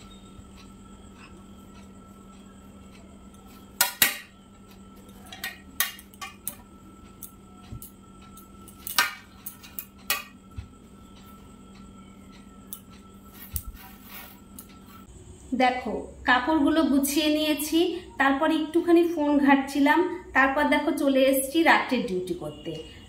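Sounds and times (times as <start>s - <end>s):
wire hangers clicking and clinking: 5.1s - 10.4s.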